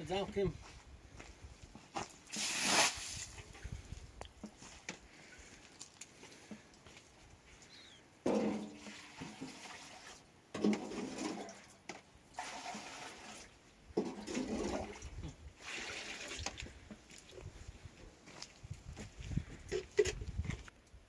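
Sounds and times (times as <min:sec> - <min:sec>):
water pouring into a basin: 0:08.7 - 0:10.2, 0:12.3 - 0:13.6, 0:14.2 - 0:16.6.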